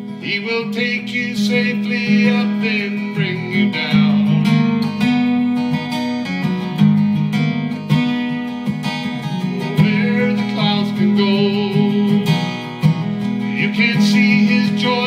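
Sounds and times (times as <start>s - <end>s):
acoustic guitar strummed: 0.0s - 15.0s.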